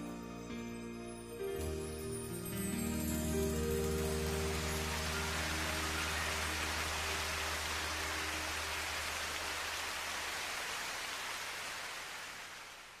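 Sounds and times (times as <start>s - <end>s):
low background music notes: 0.0s - 9.4s
rain-like hiss: 2.1s - 13.0s.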